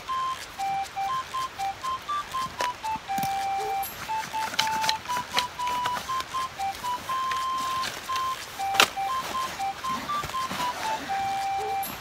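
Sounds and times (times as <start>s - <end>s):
beeping tune: 0.0s - 12.0s
backpack clicks and rustles: 2.4s - 12.0s.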